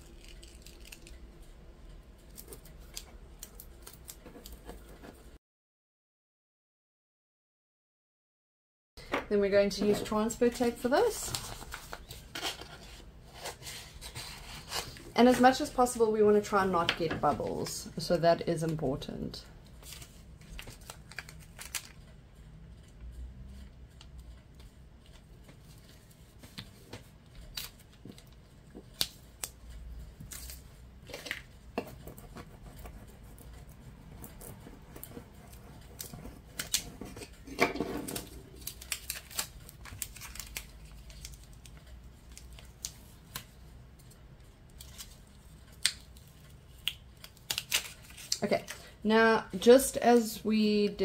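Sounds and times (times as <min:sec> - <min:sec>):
tape crackling as peeled: 0:00.0 - 0:01.6, 0:02.2 - 0:05.0, 0:19.8 - 0:22.1, 0:27.3 - 0:33.6, 0:34.2 - 0:37.4, 0:38.1 - 0:48.8
light clicks and crinkles: 0:00.0 - 0:05.3, 0:19.6 - 0:22.2, 0:22.8 - 0:49.0.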